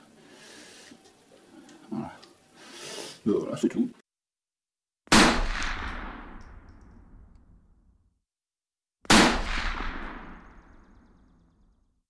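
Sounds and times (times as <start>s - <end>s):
gunshots with long echo: 5.1s - 7.8s, 9.1s - 11.3s.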